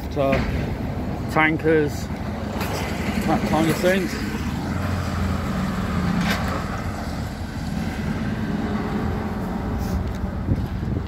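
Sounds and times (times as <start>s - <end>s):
lorry diesel engine driving off: 2.9s - 10.0s.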